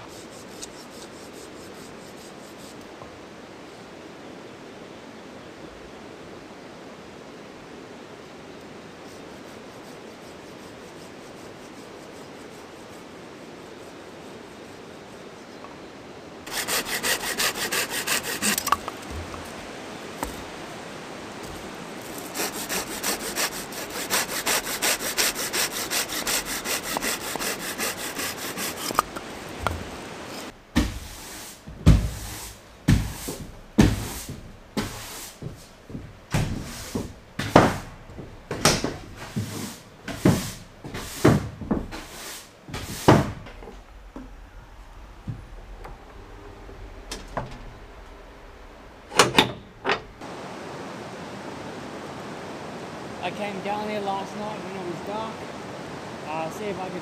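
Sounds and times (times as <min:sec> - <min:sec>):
saw cutting firewood: 0:00.0 - 0:02.9, 0:09.1 - 0:13.2, 0:16.4 - 0:19.6, 0:21.4 - 0:31.0.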